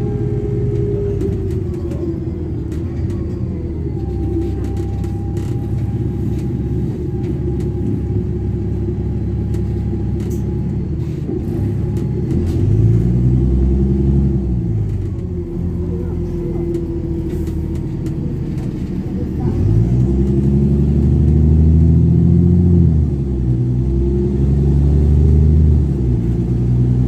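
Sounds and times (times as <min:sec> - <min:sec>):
bus diesel engine droning: 0:00.0 - 0:27.0
rattles and clicks: 0:00.5 - 0:13.0.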